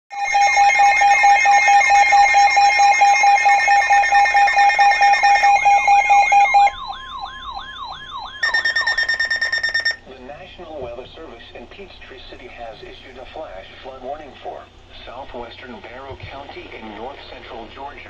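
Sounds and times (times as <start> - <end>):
loud rapid alarm beeping: 0.1 - 10.0
siren-like sweeping warble: 0.1 - 10.0
higher rapid beeping: 0.2 - 10.0.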